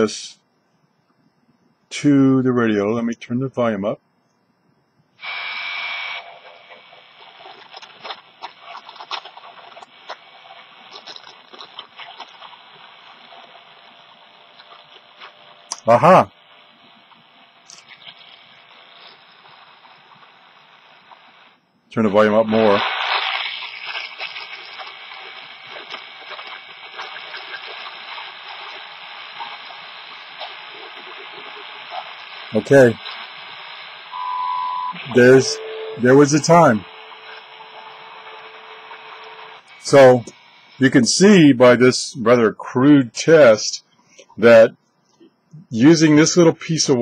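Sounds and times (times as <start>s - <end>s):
radio static hiss: 0.0s - 0.4s, 1.8s - 4.0s, 5.1s - 47.0s
crackles and clicks: 5.2s - 47.0s
steady whistle: 34.1s - 37.0s.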